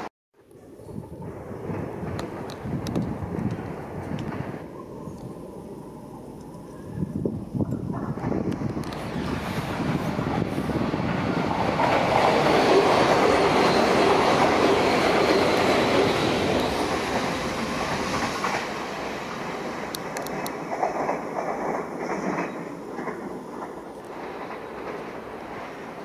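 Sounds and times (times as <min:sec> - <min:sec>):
train wheels rumbling on rail: 0:00.9 - 0:26.0
wheels clicking over rail joints: 0:11.0 - 0:26.0.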